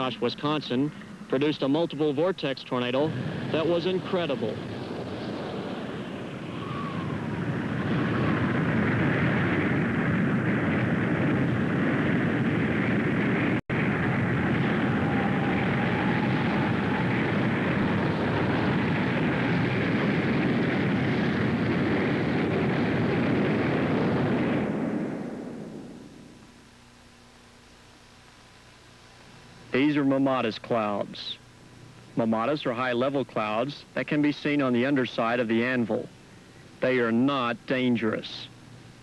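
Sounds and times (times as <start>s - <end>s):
tornado wind roaring: 0.0s - 26.4s.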